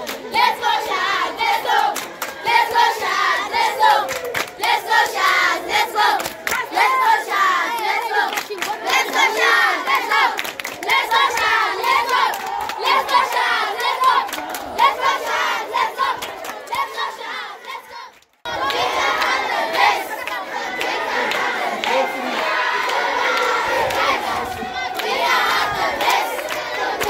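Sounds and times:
children chanting: 0:00.0 - 0:27.0
hand clapping: 0:04.0 - 0:04.8, 0:06.2 - 0:06.7, 0:07.8 - 0:13.1.

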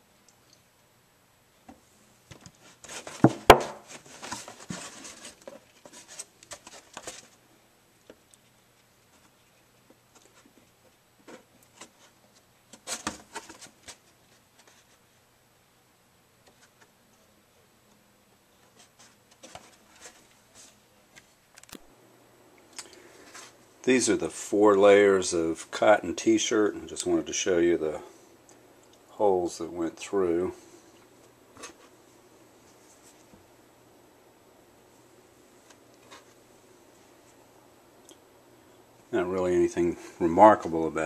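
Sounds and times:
plastic jug rubbing and rustling: 0:02.6 - 0:07.4.

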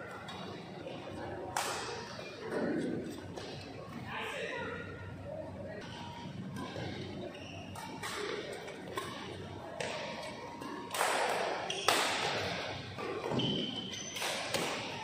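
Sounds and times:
rackets hitting shuttlecock: 0:07.7 - 0:15.0.

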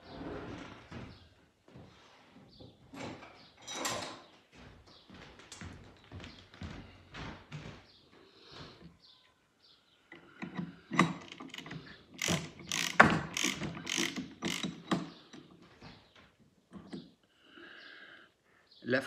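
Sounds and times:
spanner clicking on metal nut: 0:10.1 - 0:15.5.

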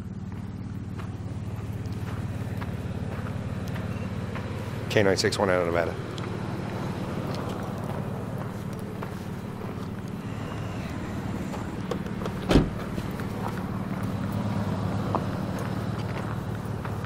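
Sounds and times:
car engine idling: 0:00.0 - 0:17.0
sharp thump: 0:12.4 - 0:12.9.

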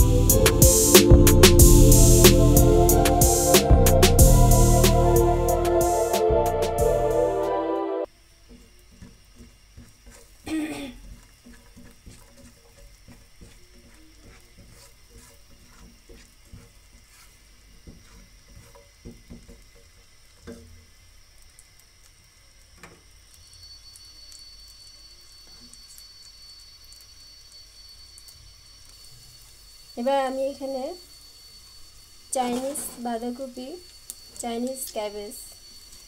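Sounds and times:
garlic sizzling in butter: 0:08.4 - 0:36.0.

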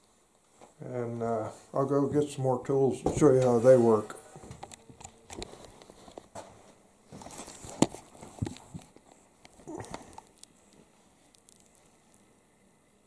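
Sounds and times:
footsteps: 0:02.9 - 0:10.1.

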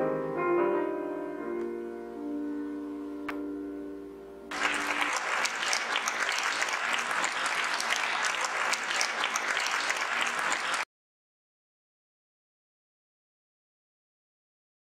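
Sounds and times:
piano chord: 0:00.0 - 0:05.2
audience applause: 0:04.5 - 0:10.9.

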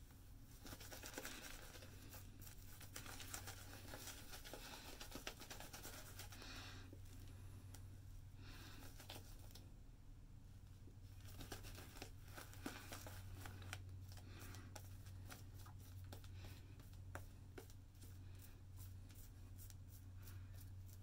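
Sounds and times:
low steady hum: 0:00.0 - 0:21.0
shaving brush swishing lather: 0:00.5 - 0:06.4.

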